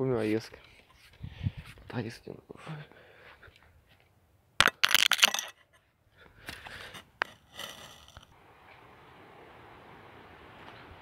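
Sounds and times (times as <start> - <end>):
faint steady hiss: 8.2 - 11.0.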